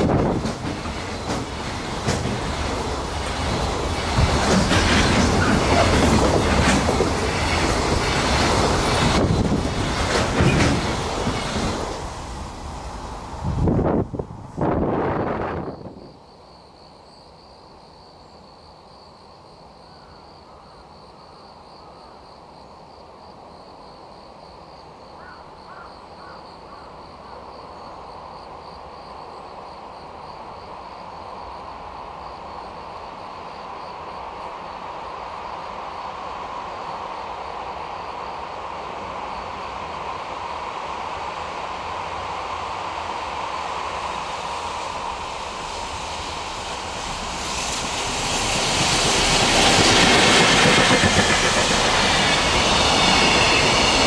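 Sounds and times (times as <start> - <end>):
freight train rumble in tunnel: 0.0 - 54.0.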